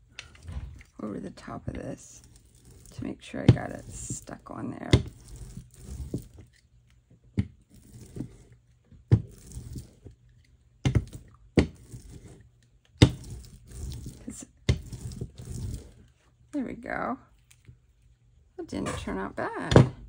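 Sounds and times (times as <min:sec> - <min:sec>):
brayer rolling swishes: 0:00.0 - 0:06.6, 0:07.6 - 0:10.2, 0:10.9 - 0:16.2.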